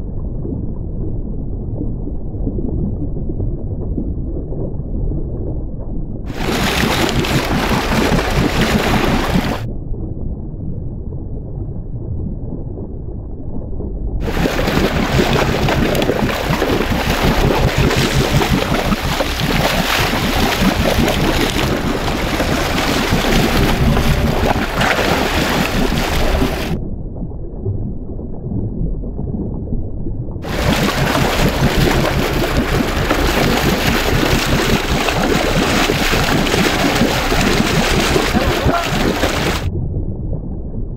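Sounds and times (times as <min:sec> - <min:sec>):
water rushing and splashing: 0:06.3 - 0:09.7, 0:14.2 - 0:26.8, 0:30.4 - 0:39.7.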